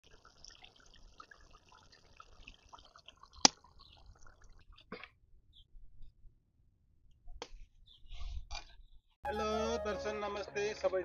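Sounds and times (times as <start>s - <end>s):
curry bubbling in a pot: 0.0s - 4.9s.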